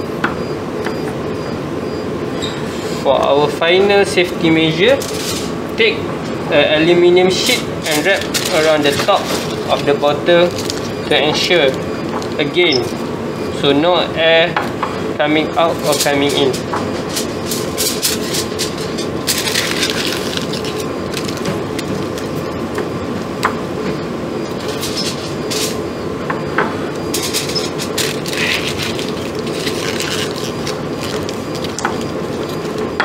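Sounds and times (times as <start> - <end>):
steady background hum: 0.0 - 33.0
aluminium foil crinkling: 7.4 - 13.1, 15.8 - 22.6, 27.2 - 33.0.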